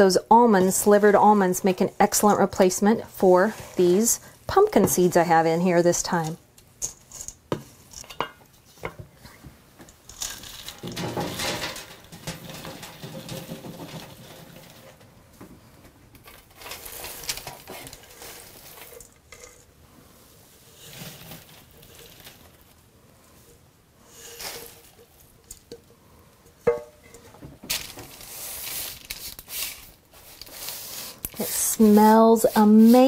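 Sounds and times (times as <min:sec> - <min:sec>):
oats rustling and scraping: 0:16.3 - 0:25.4, 0:27.7 - 0:33.0.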